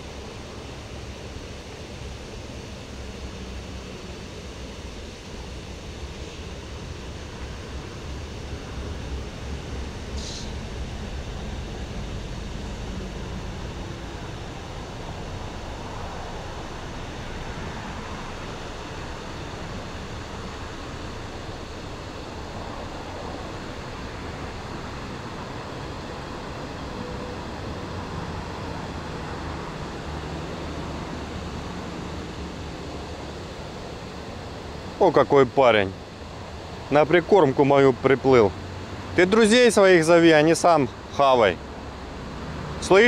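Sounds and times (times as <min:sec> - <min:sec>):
distant city traffic rumble: 0:08.7 - 0:35.2.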